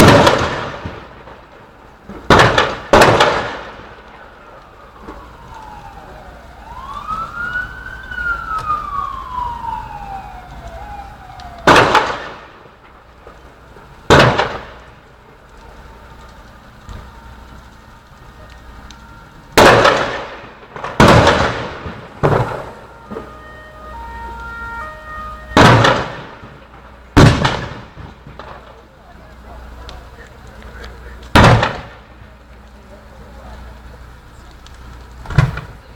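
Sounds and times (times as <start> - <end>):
explosions with rolling echo: 0.0 - 5.5, 10.8 - 15.4, 17.8 - 28.8, 30.7 - 32.2
emergency siren wailing: 0.0 - 35.9.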